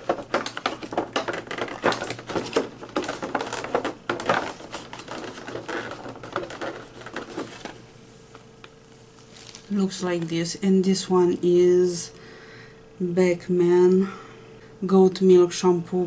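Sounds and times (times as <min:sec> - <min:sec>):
cardboard crackling and tapping: 0:00.0 - 0:10.4.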